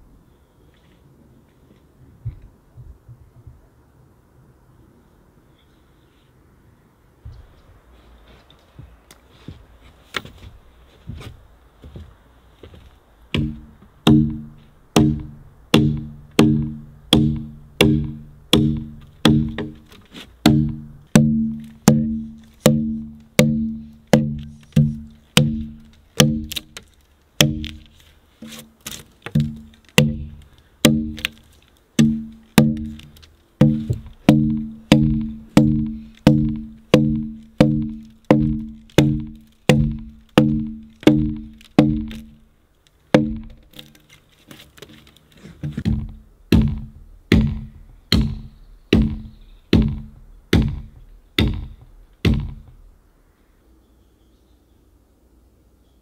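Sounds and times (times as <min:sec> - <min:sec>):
axe chopping log: 0:13.4 - 0:42.4, 0:43.1 - 0:44.0, 0:45.6 - 0:52.8.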